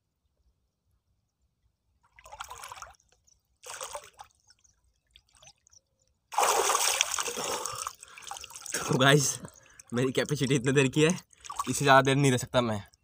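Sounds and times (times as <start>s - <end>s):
water splashing: 2.1s - 5.7s, 6.3s - 12.4s.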